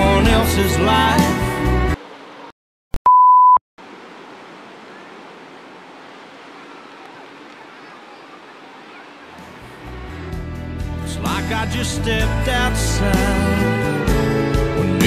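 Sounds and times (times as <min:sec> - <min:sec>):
short electronic beep: 0:03.0 - 0:03.6
surf breaking on beach: 0:03.8 - 0:09.9.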